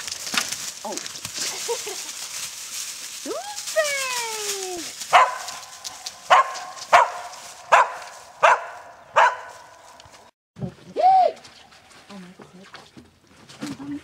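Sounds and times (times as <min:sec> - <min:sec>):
dog barking: 0:05.1 - 0:05.7, 0:06.3 - 0:09.7.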